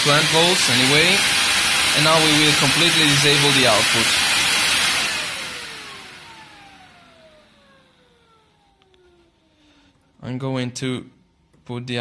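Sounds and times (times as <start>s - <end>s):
fan running loud: 0.0s - 9.5s
fan spinning down: 0.0s - 9.9s.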